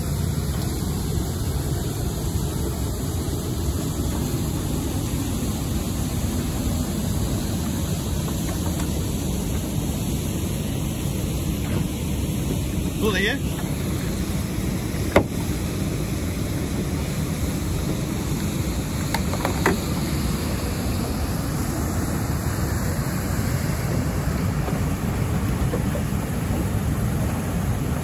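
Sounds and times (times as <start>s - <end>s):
river water rushing: 12.4s - 28.0s.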